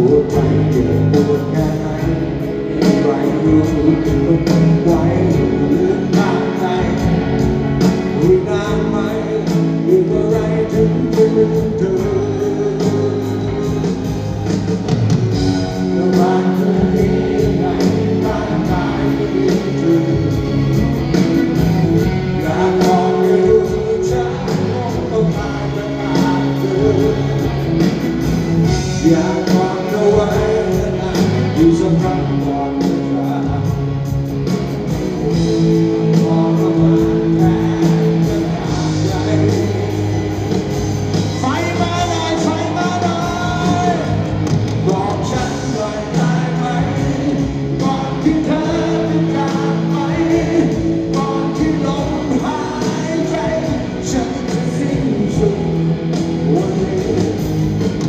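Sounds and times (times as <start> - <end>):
man singing: 0.0 - 58.0
rock band and orchestra playing ballad: 0.0 - 58.0.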